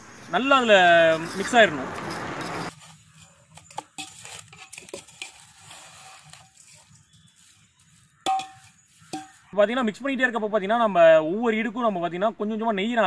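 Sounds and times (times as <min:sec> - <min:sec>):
utensil scraping through syrup: 0:01.1 - 0:09.3
utensil clinking against vessel: 0:08.2 - 0:09.4.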